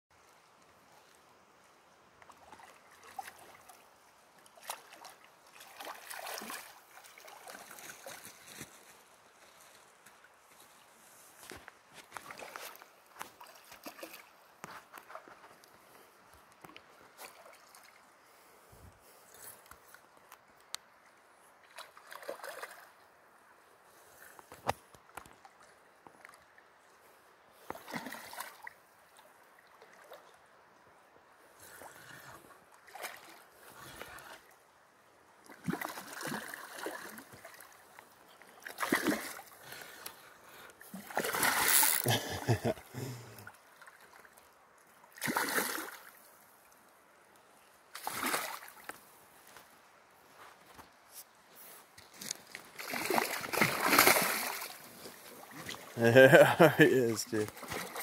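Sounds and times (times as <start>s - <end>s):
faint river flow: 0.1s - 58.0s
fish splashing in shallow water: 4.5s - 8.5s, 12.2s - 14.4s, 21.6s - 23.0s, 27.6s - 28.8s, 31.6s - 34.5s, 35.4s - 40.0s, 40.8s - 42.6s, 45.1s - 46.2s, 47.9s - 48.9s, 52.2s - 56.0s, 57.4s - 58.0s.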